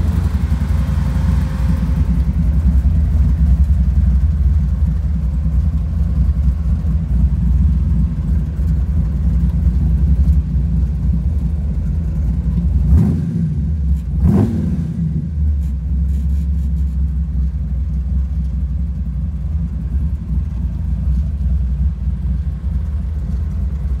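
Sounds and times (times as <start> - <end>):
pickup truck engine revving: 12.8 - 15.4.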